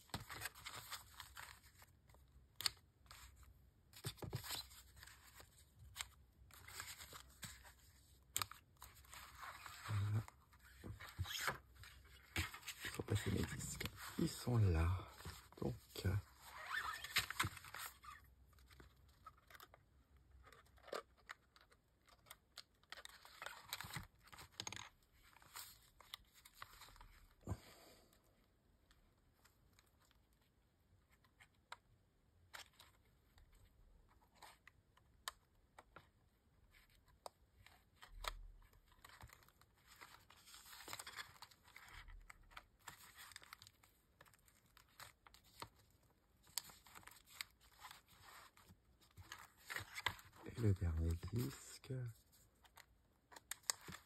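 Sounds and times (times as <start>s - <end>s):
plastic discs clicking into paper: 52.7s - 54.0s.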